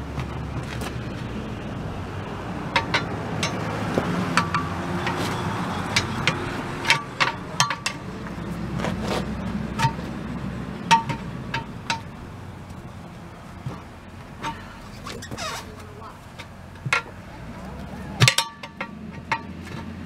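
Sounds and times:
steady low rumble: 0.0s - 19.4s
pry bars clinking on wheel rim: 2.7s - 8.5s, 10.8s - 12.8s, 13.7s - 20.0s.

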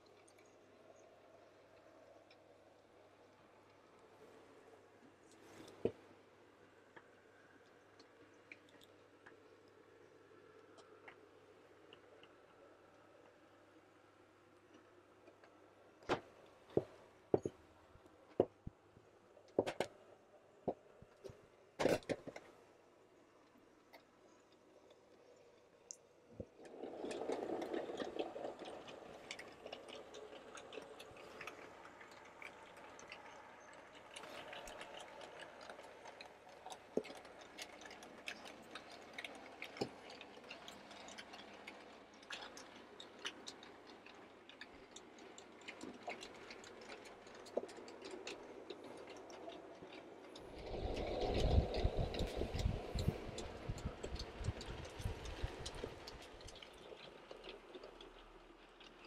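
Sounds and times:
model train wheels clicking on rails: 25.0s - 59.0s.

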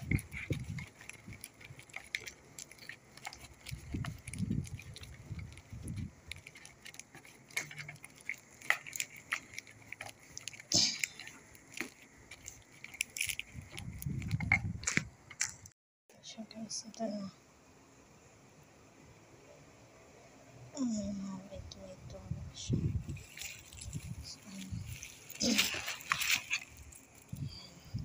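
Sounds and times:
bubble wrap crinkling: 0.0s - 15.5s, 23.0s - 27.4s
packaging rustle: 0.0s - 15.5s, 23.1s - 27.4s.

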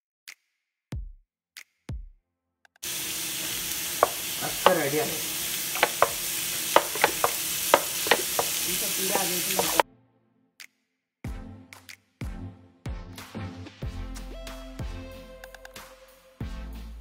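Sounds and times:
onions sizzling in a pot: 2.8s - 9.8s.

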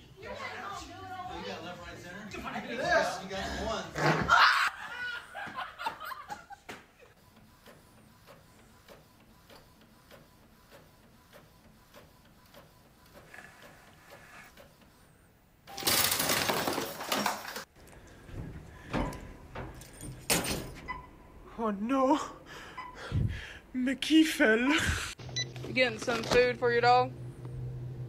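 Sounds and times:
printer clicking and whirring: 7.2s - 15.0s.

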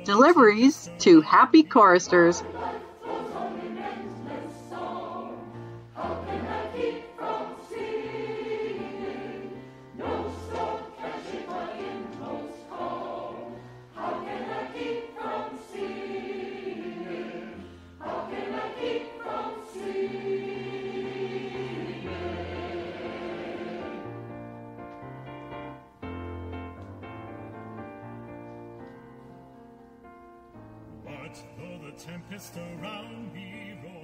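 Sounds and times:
choir singing a hymn: 0.0s - 24.7s.

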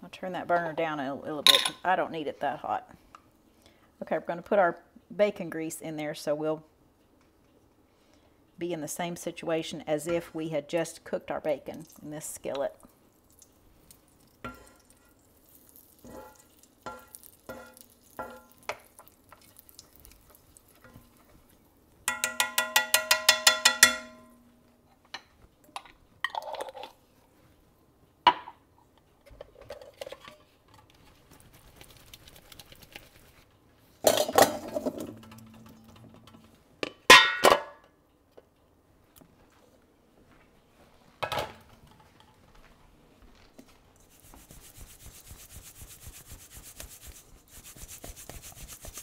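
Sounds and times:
metal bowls and utensil clinking: 1.5s - 1.8s, 14.4s - 21.4s, 22.1s - 24.5s, 34.0s - 36.5s.

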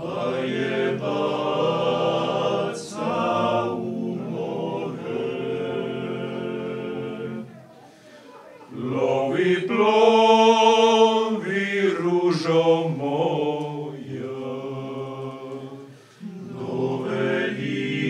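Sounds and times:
a cappella ensemble singing: 0.0s - 7.8s, 8.7s - 18.0s
singer breathing: 7.7s - 8.4s, 15.9s - 16.2s.

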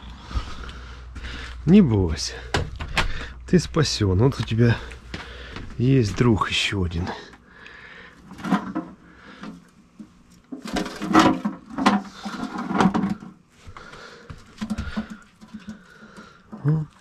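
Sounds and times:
knocks and scrapes of handling: 8.3s - 13.4s.

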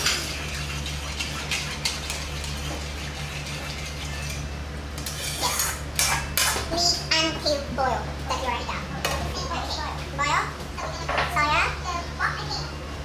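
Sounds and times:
steady low hum: 0.0s - 13.0s
metal utensils scraping a wok: 3.2s - 6.5s.

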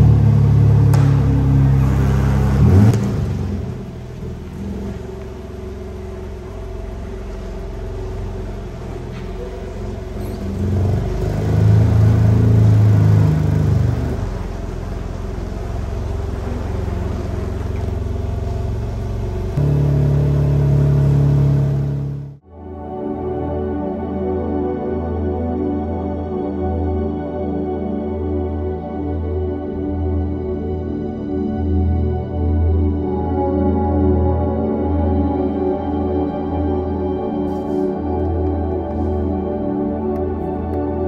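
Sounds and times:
car engine idling and revving: 0.0s - 22.4s, 37.4s - 41.0s.

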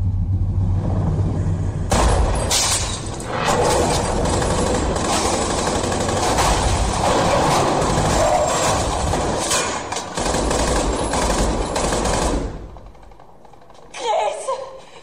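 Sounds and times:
rapid automatic gunfire: 3.2s - 13.8s.

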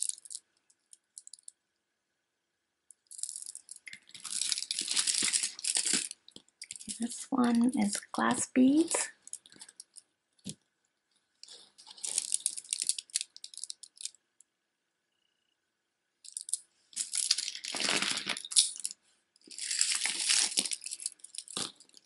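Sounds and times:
glass beads clicking and rattling: 0.0s - 1.6s, 2.9s - 8.1s, 8.8s - 10.0s, 11.4s - 14.2s, 16.2s - 22.0s.

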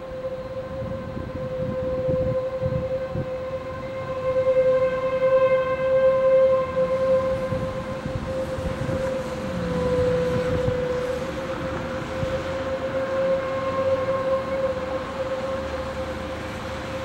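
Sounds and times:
tornado warning siren: 0.0s - 17.0s.

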